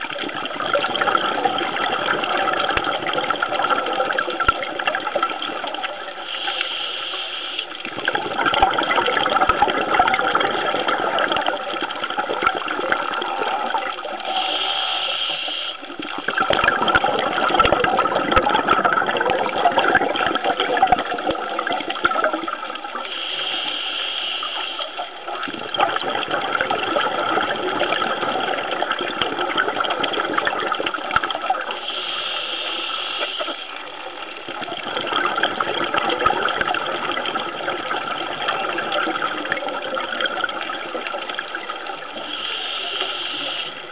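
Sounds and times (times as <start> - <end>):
exhaled bubbles rushing: 0.0 - 43.9
regulator hissing inhale: 6.2 - 7.7, 14.2 - 15.9, 23.1 - 25.0, 31.8 - 33.7, 42.2 - 43.9.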